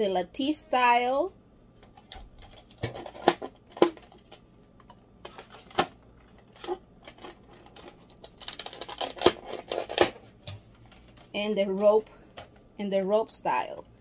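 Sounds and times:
plastic container clicking and crackling: 0:06.6 - 0:11.1.

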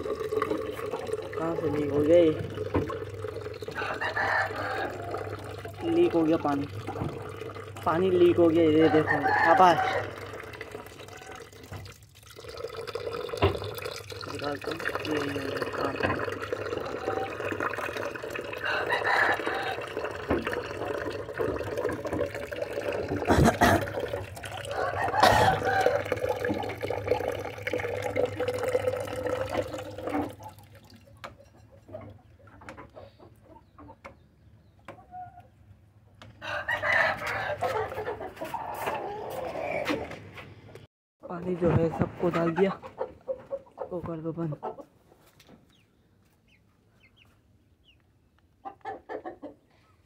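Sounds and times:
water splashing into plastic bucket: 0:00.0 - 0:03.8, 0:04.9 - 0:08.6, 0:09.3 - 0:31.4
roosters crowing: 0:03.6 - 0:05.7, 0:08.6 - 0:11.6, 0:18.3 - 0:21.0, 0:23.6 - 0:26.8, 0:36.3 - 0:40.2
chickens clucking: 0:23.3 - 0:26.8, 0:29.5 - 0:50.0.

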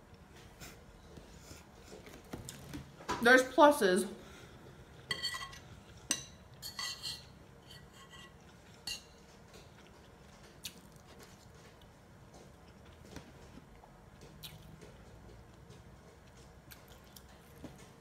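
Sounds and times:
metal spoon clinking on bowl: 0:05.1 - 0:09.2.

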